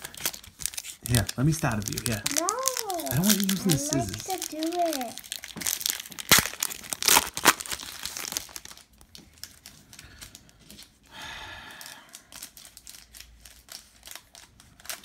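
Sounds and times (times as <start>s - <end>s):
cards rustling: 0.0s - 10.9s
foil wrapper crinkling and tearing: 0.0s - 11.1s, 11.7s - 15.0s.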